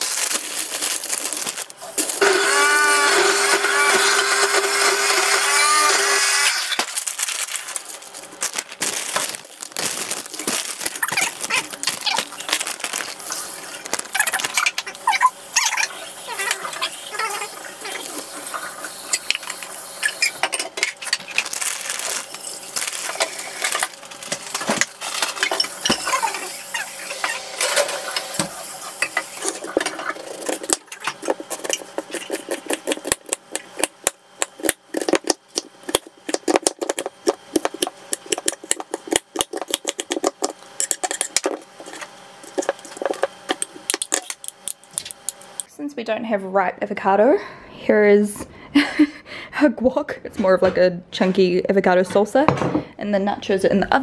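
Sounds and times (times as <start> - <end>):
corn chips crinkling and crackling: 0.0 - 2.2, 6.7 - 45.6
loud steady hum: 0.0 - 50.3.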